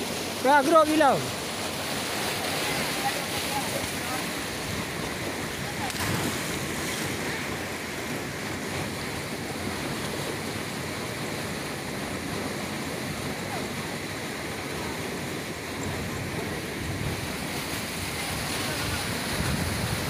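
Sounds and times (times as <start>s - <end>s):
wind buffeting microphone: 15.9s - 20.0s.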